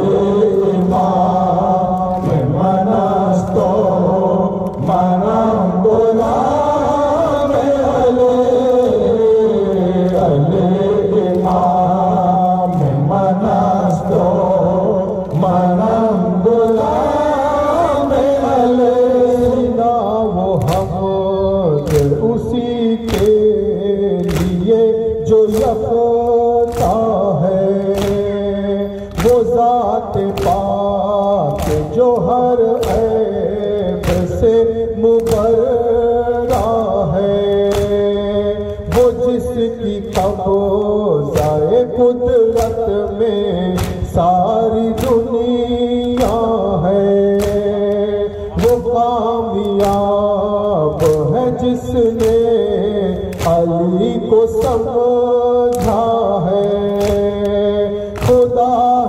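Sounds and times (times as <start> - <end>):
men singing in unison: 0.0 - 59.0
chest-beating slaps: 0.2 - 3.8, 20.6 - 59.0.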